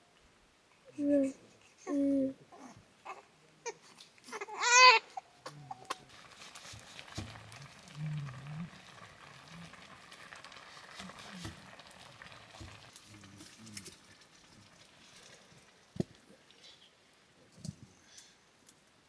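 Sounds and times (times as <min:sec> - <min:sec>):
low voice-like sounds: 0:05.4 - 0:06.2, 0:07.2 - 0:10.1
pork sizzling in fat: 0:05.9 - 0:16.0.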